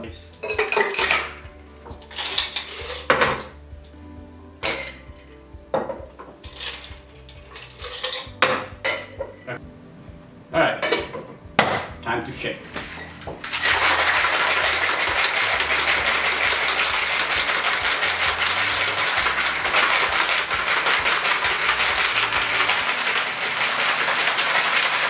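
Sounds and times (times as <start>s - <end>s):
ice rattling in cocktail shaker: 0.4s - 3.3s, 6.4s - 8.4s, 12.7s - 25.0s.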